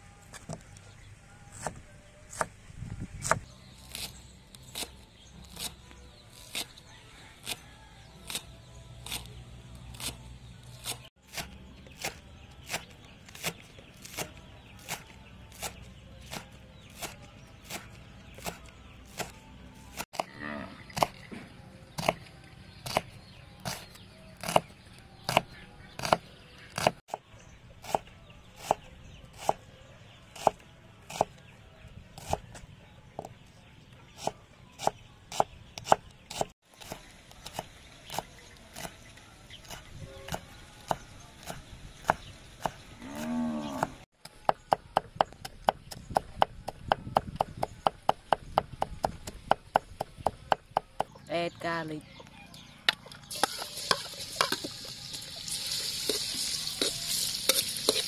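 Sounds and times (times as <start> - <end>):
knife chopping on wooden board: 25.3 - 27.0.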